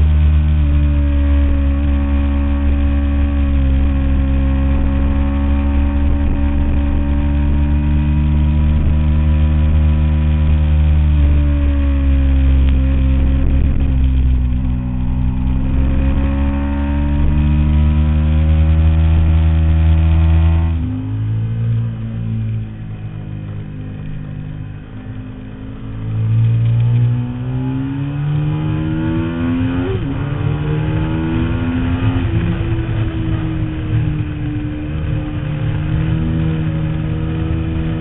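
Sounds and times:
motorcycle engine running: 0.0s - 27.2s.

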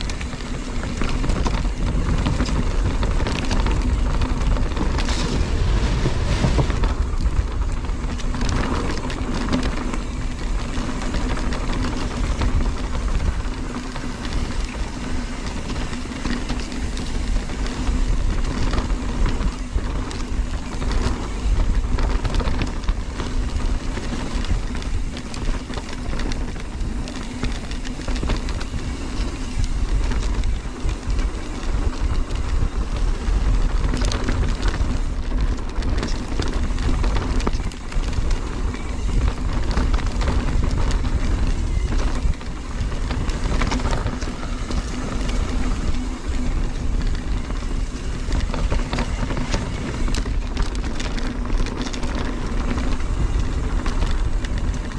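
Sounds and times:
bike rattling and knocking: 0.0s - 54.9s
tyres rolling over dirt and leaves: 0.0s - 54.9s
wind rumble on microphone: 0.0s - 54.9s.

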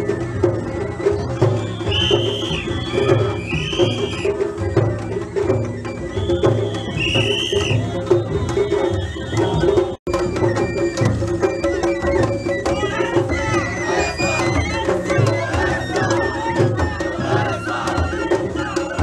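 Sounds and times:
flute held tone: 0.0s - 19.0s
taiko drum beating: 0.0s - 19.0s
crowd shouting: 12.7s - 19.0s.

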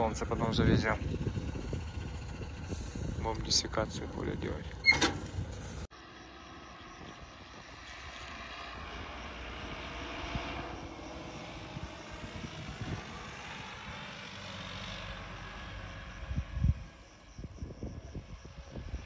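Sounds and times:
wind rumbling on microphone: 0.0s - 5.9s, 6.9s - 14.2s, 15.6s - 19.0s
propeller aircraft engine drone: 0.0s - 19.0s.

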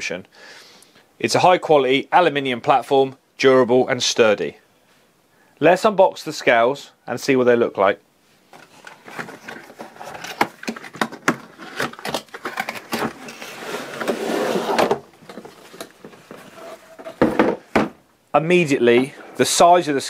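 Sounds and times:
cardboard rustling and scraping: 8.5s - 17.7s
plastic case sliding scrape: 8.6s - 17.7s, 18.9s - 19.6s.

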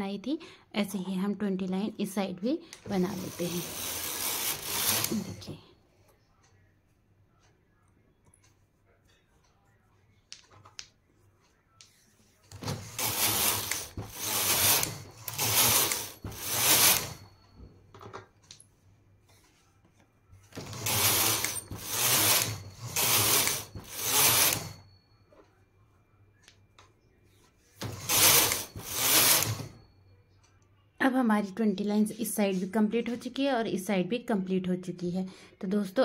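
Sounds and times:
knitting machine carriage clatter: 2.9s - 5.6s, 12.5s - 17.3s, 20.5s - 24.8s, 27.8s - 29.8s.

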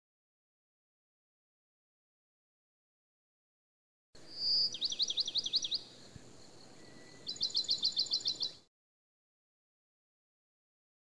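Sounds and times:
songbird singing: 4.2s - 8.7s.

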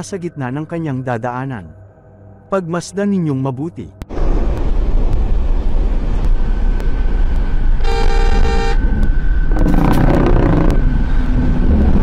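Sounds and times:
car engine and road noise: 4.1s - 12.0s
car horn: 7.8s - 8.8s.

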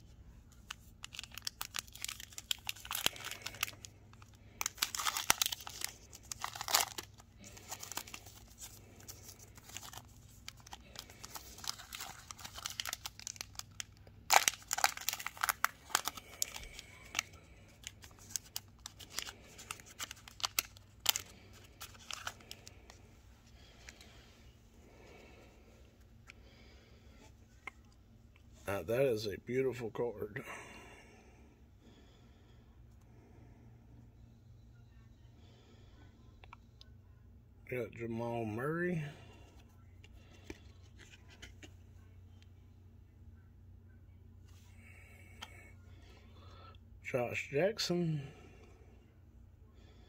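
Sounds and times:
foil wrapper crinkling and tearing: 0.6s - 22.9s.

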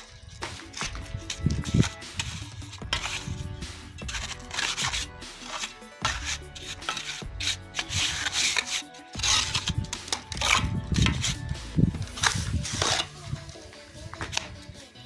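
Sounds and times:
trowel scraping mortar: 0.0s - 14.7s.

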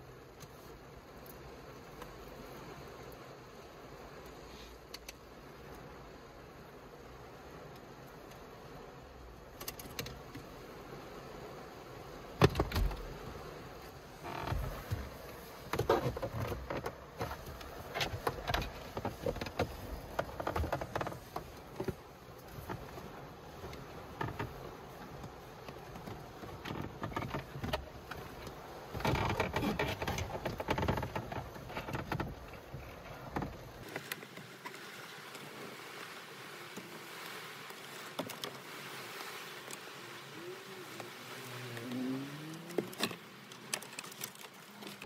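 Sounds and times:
low steady hiss: 0.0s - 45.0s
cables rustling and scraping: 13.8s - 36.1s, 36.7s - 45.0s.

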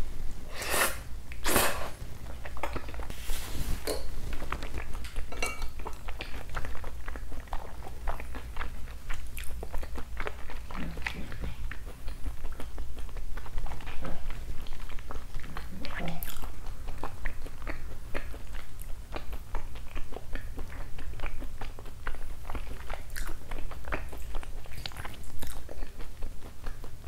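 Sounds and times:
wet chewing: 3.8s - 27.0s.

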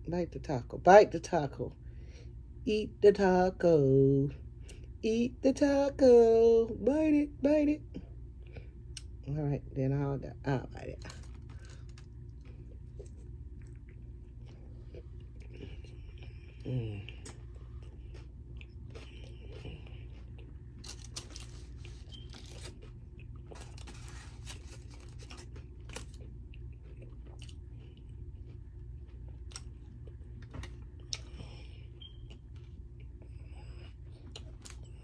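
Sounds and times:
low room hum: 0.0s - 35.0s
person chewing and crunching: 11.0s - 35.0s.

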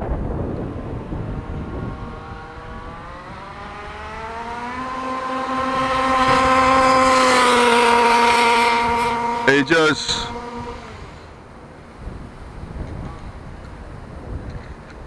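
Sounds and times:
small two-stroke engine revving: 0.8s - 11.5s.

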